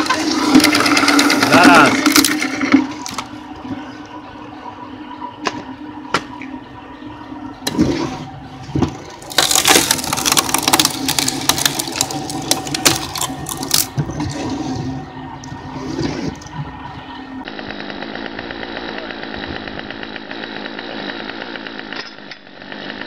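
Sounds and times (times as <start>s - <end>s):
wood cracking and splintering: 0.0s - 3.3s, 8.8s - 14.5s
log splitter motor hum: 0.0s - 23.0s.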